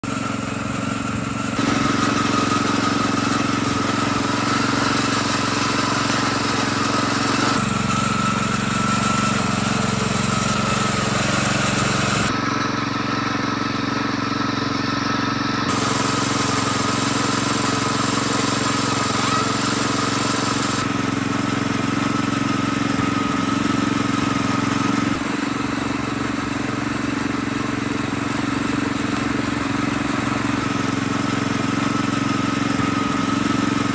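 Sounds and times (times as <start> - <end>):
small tractor engine running: 0.0 - 33.9.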